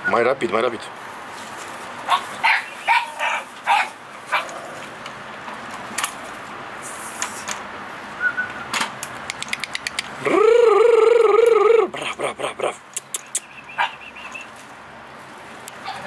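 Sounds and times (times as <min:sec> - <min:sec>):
puppy yipping: 0:02.1 - 0:04.5, 0:13.2 - 0:14.5
sharp clicks: 0:09.0 - 0:10.2, 0:12.9 - 0:13.5.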